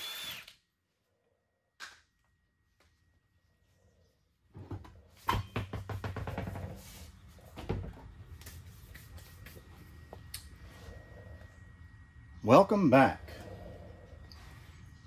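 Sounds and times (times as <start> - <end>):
wheel knocking and scraping: 4.6 - 8.0.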